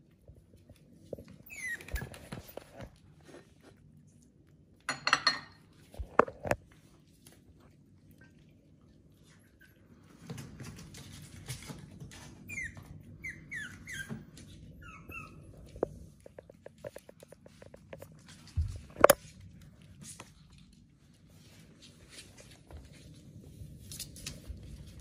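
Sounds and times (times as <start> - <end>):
puppies whimpering: 1.2 - 2.8, 12.2 - 16.3.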